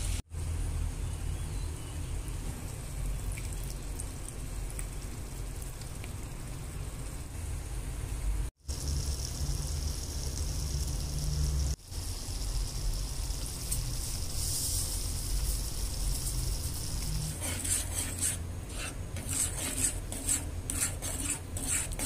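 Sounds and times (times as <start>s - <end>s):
sauce sizzling in a frying pan: 8.6s - 17.3s
spoon scraping a pan: 17.0s - 22.0s.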